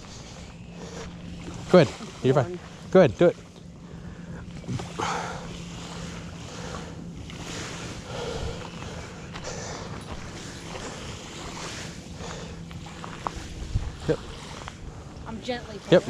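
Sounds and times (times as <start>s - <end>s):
steady low hum: 0.0s - 16.0s
small waves lapping on gravel: 4.6s - 16.0s
wind buffeting microphone: 8.0s - 16.0s.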